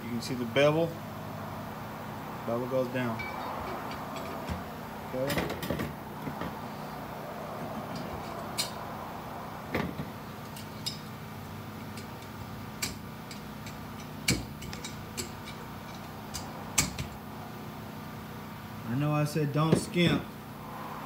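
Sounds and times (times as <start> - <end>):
low steady hum: 0.0 - 21.0
metal parts clicking and clinking: 7.9 - 8.8, 11.8 - 17.2.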